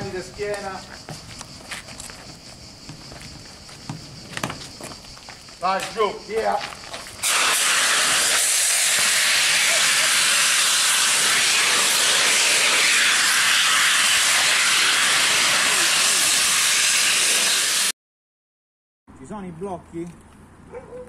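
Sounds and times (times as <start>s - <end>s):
fire extinguishers hissing: 7.0s - 17.9s.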